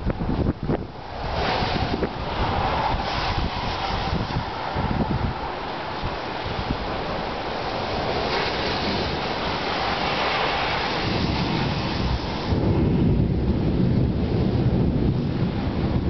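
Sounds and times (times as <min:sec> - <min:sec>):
heavy rain: 0:00.0 - 0:16.0
wind: 0:00.0 - 0:16.0
low thunder rumble: 0:08.9 - 0:16.0.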